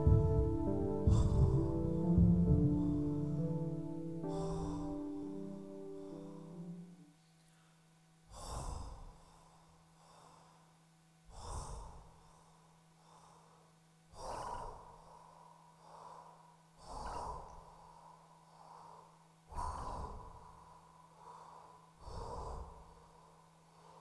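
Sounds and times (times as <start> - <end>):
music: 0.0 - 7.1
heavy human breathing: 0.0 - 24.0
low steady hum: 0.0 - 24.0.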